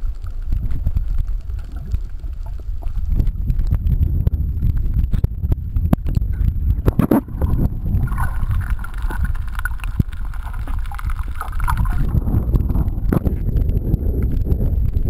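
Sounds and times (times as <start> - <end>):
steady mid-pitched hum: 0.0 - 15.0
water churning and rumbling: 0.0 - 15.0
splashes and knocks: 6.8 - 13.6.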